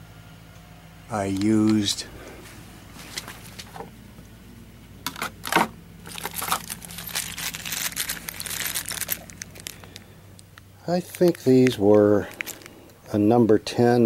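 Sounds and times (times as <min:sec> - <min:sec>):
plastic bag crinkling: 0:05.2 - 0:10.1, 0:11.1 - 0:12.9.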